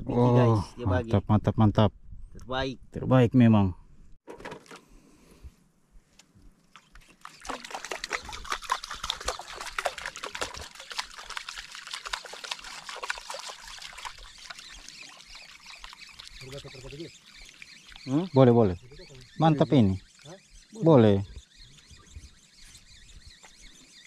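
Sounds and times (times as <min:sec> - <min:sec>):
fish thrashing and splashing: 0:06.6 - 0:19.4.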